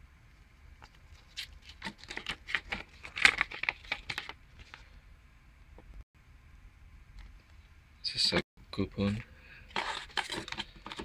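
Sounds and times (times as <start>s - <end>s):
paper crackling and rustling: 1.1s - 4.9s, 9.7s - 11.0s.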